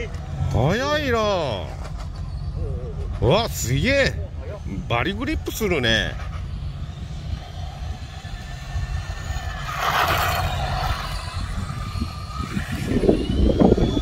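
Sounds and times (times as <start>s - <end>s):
wind rumble on microphone: 0.0s - 14.0s
toy car motor whining: 1.5s - 14.0s
tyres hissing on asphalt: 4.4s - 13.5s.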